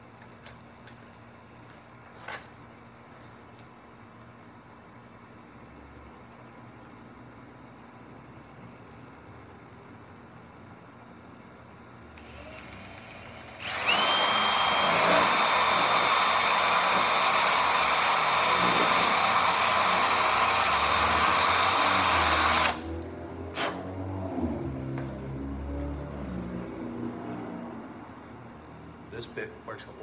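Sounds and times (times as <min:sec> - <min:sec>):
cordless drill whining: 0:12.2 - 0:22.9.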